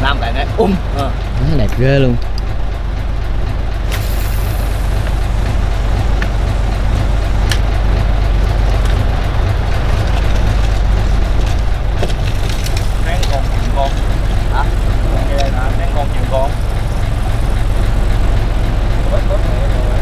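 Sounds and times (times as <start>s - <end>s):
boat engine humming: 0.0s - 20.0s.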